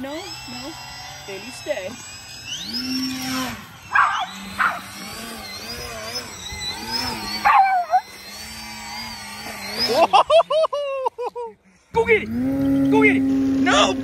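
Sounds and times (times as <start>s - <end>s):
electric model plane motor whine: 0.0s - 14.0s
dog barking: 4.0s - 4.8s.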